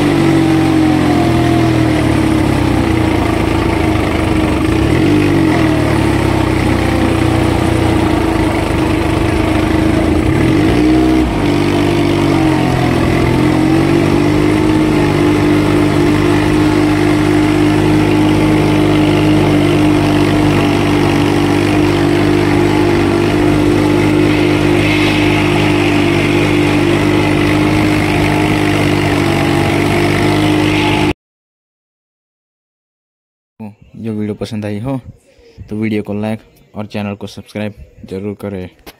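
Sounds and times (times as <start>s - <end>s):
tractor engine running under load: 0.0s - 31.1s.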